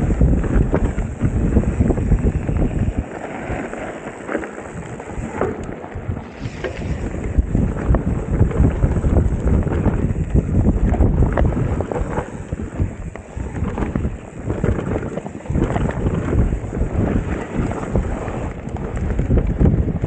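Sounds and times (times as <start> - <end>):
bike rattling and knocking: 0.0 - 20.0
tyres rolling on dirt: 0.0 - 20.0
wind buffeting microphone: 0.0 - 20.0.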